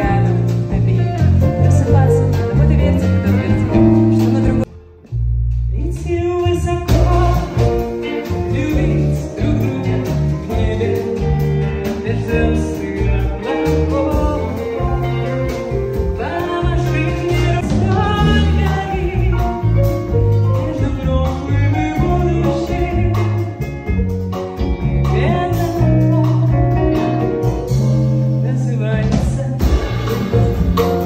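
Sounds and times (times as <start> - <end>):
double bass notes: 0.0 - 31.0
live band playing: 0.0 - 31.0
woman singing into a microphone: 13.9 - 19.8.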